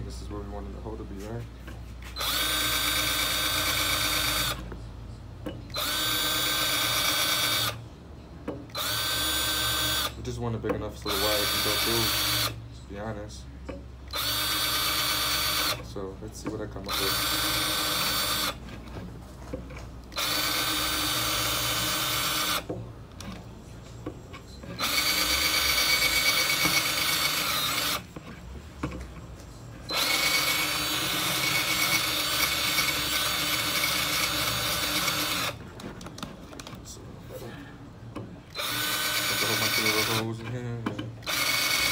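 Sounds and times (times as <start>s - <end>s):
cordless drill whining: 2.1s - 4.6s, 5.7s - 7.8s, 8.7s - 10.2s, 11.1s - 12.6s, 14.1s - 15.8s, 16.8s - 18.6s, 20.1s - 22.7s, 24.8s - 28.1s, 29.9s - 35.6s, 38.5s - 40.4s, 41.2s - 41.9s.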